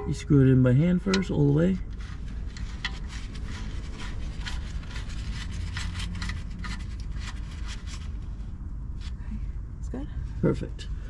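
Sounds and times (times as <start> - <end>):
steady low rumble: 0.0 - 11.0.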